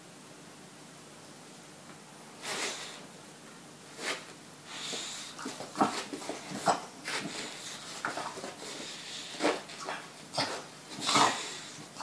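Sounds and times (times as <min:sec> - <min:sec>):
dog snorting: 0:04.0 - 0:12.0.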